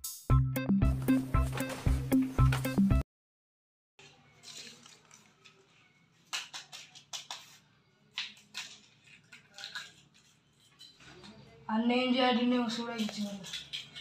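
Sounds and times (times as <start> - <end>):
crinkling and clicking handling: 4.0 - 11.4, 12.7 - 14.0.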